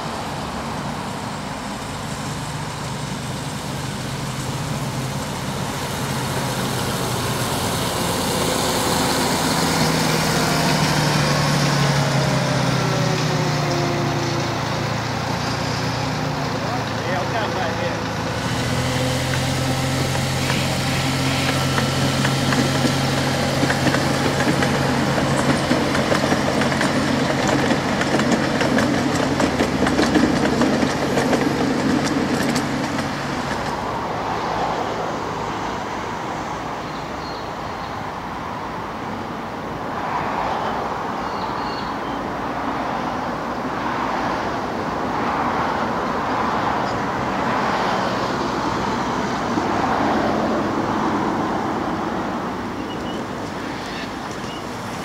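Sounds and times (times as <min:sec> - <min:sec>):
miniature train running on track: 0:00.0 - 0:34.0
uneven rumble of small train: 0:00.0 - 0:55.0.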